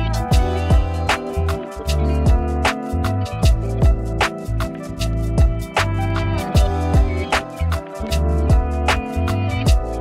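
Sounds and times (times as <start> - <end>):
electronic beat music: 0.0 - 10.0.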